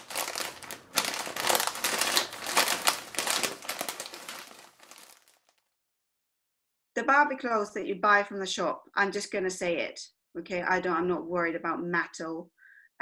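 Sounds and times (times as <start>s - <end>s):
crinkly plastic crumpling: 0.0s - 5.7s.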